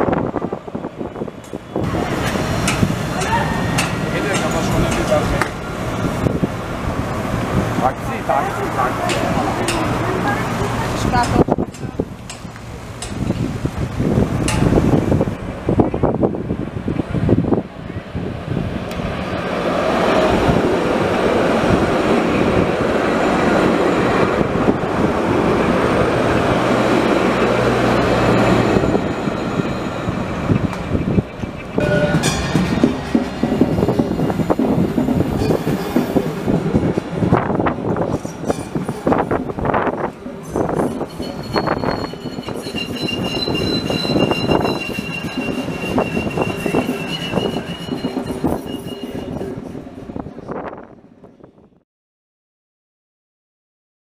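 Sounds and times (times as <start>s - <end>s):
tram running on rails: 0.0s - 51.8s
high-pitched wheel squeal: 28.4s - 30.6s, 40.6s - 49.6s.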